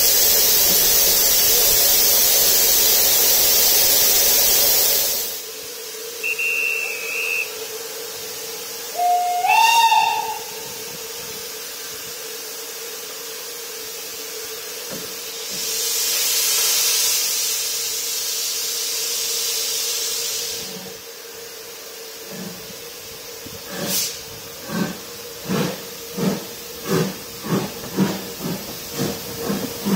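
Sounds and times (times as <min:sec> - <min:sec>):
steam hissing from cylinders: 0:00.0 - 0:29.9
short high whistle: 0:06.2 - 0:07.6, 0:08.9 - 0:10.6
steam locomotive whistle blast: 0:06.2 - 0:07.7, 0:08.9 - 0:10.9.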